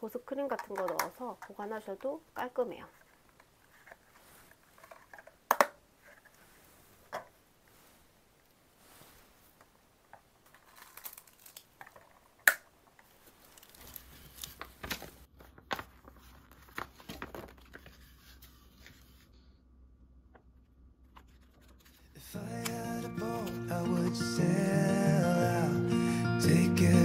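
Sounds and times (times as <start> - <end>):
paper rustling and crinkling: 2.9 - 5.4, 10.4 - 19.3, 21.2 - 22.2.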